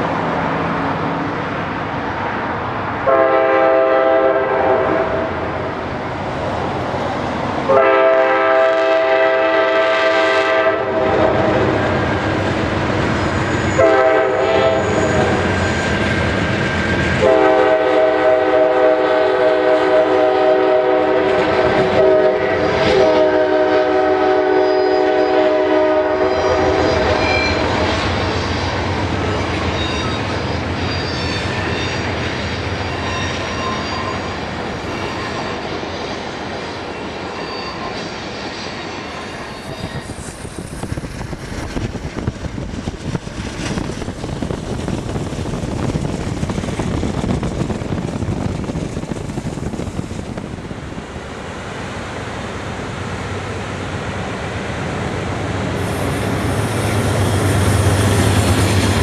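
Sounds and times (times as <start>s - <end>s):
train wheels rumbling on rail: 0.0s - 59.0s
high wheel squeals: 13.0s - 13.9s, 14.7s - 17.2s, 24.6s - 25.1s, 26.3s - 40.9s.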